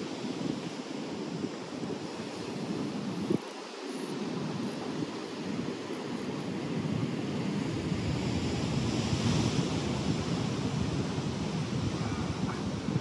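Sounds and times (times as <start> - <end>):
ocean surf rushing: 0.0 - 13.0
wind buffeting microphone: 4.2 - 13.0.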